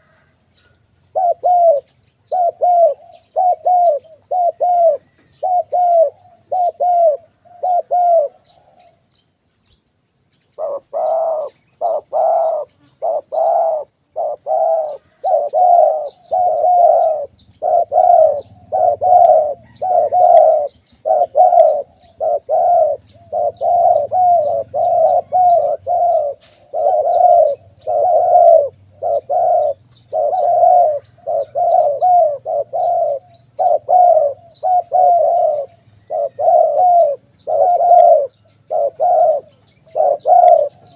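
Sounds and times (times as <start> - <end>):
doves cooing: 0.0 - 9.1, 10.5 - 40.9.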